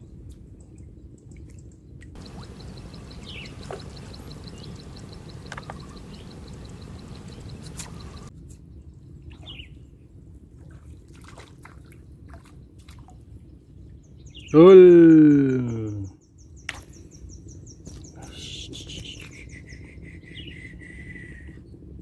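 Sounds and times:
bird chirps: 2.2s - 8.3s
wind rumbling on microphone: 2.2s - 14.5s, 16.9s - 22.0s.

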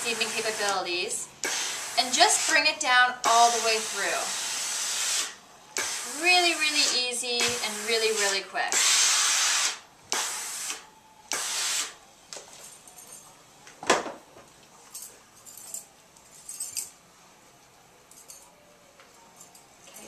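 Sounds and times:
steam iron hissing: 0.0s - 12.0s
faint clinks and rustles: 12.4s - 13.7s, 14.5s - 20.0s.

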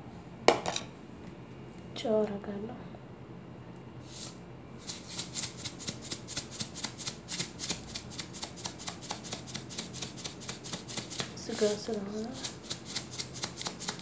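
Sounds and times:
salt shaker rattling: 4.8s - 14.0s.

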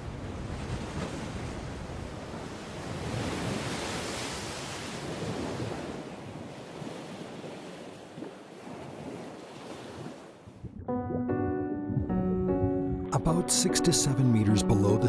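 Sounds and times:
sea waves breaking: 0.0s - 10.8s
music: 10.8s - 15.0s.

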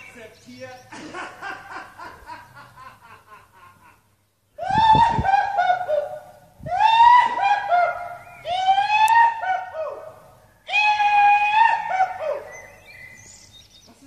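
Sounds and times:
man yelling shrill whoops: 6.7s - 10.1s, 10.7s - 12.6s.

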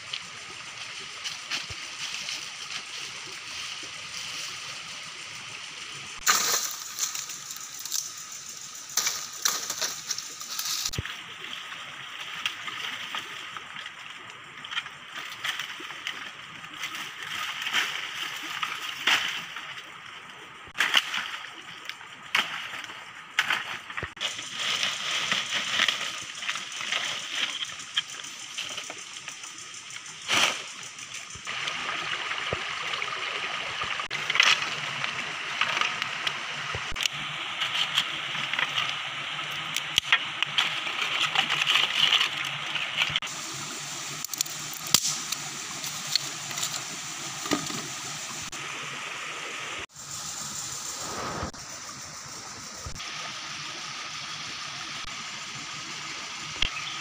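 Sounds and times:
stream rushing: 31.4s - 57.0s
dry sticks snapping: 44.2s - 45.4s.

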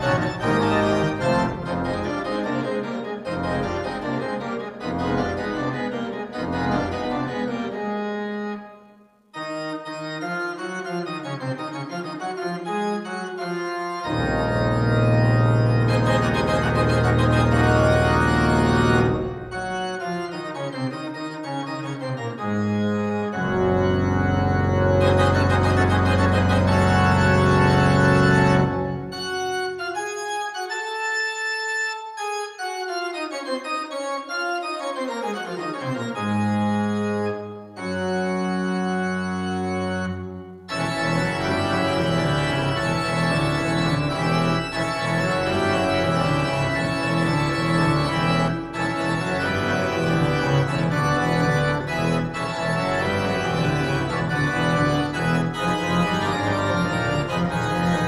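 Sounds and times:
church organ chords: 0.0s - 58.0s.

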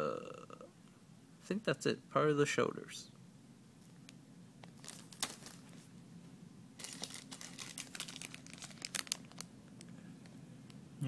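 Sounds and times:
plastic bag crinkling: 4.6s - 5.9s, 6.8s - 10.4s.

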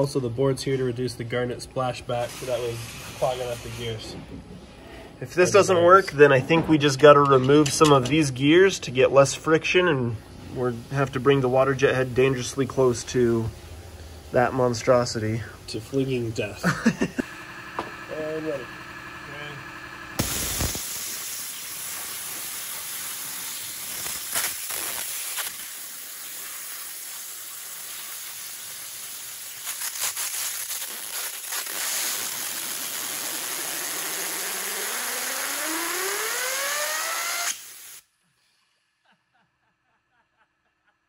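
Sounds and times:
waterjet hissing: 20.2s - 29.6s, 30.8s - 38.0s.

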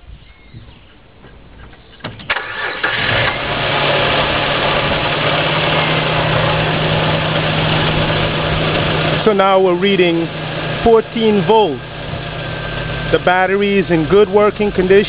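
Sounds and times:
car engine idling: 0.9s - 15.0s
starter motor cranking: 2.0s - 6.4s.

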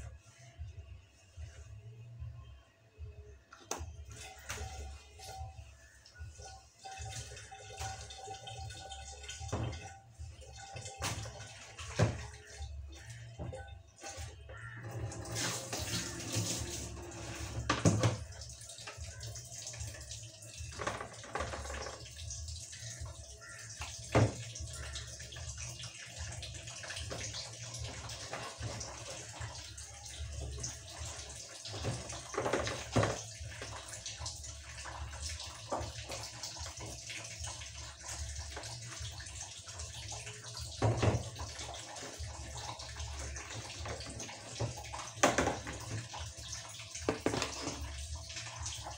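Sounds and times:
water splashing in sink: 3.7s - 48.9s
plastic knocking against sink: 40.8s - 41.4s, 44.0s - 46.1s, 47.0s - 47.9s.

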